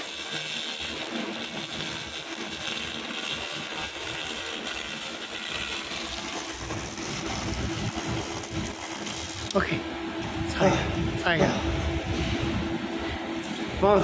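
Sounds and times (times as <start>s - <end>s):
laser cleaning hiss: 0.0s - 9.7s
low hum: 4.6s - 14.0s.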